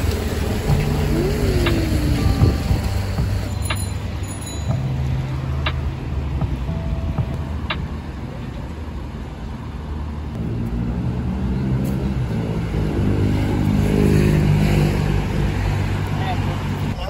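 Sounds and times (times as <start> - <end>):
tyre hiss on wet road: 0.0 - 4.4
passing car engines: 0.0 - 17.0.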